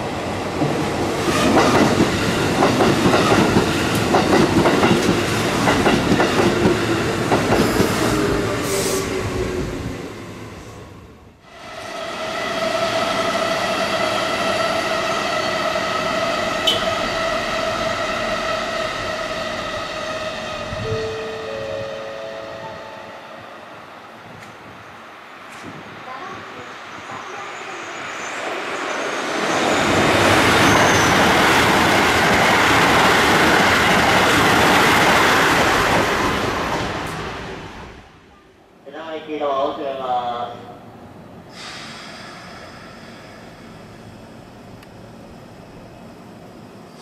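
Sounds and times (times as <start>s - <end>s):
electric train whine: 1.3s - 25.6s.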